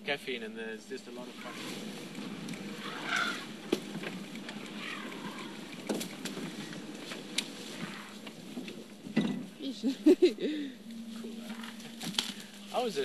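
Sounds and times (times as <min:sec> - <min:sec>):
elephant trumpeting: 0:01.3 - 0:06.5, 0:07.6 - 0:08.2.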